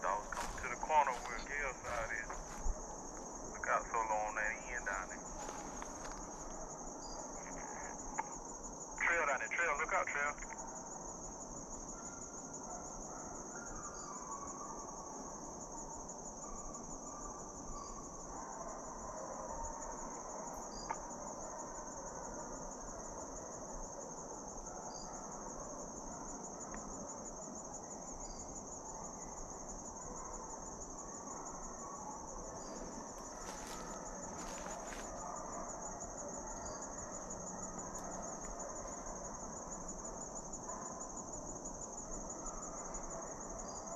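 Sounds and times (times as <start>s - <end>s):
insects trilling: 0.0s - 43.9s
woodland background noise: 0.0s - 43.9s.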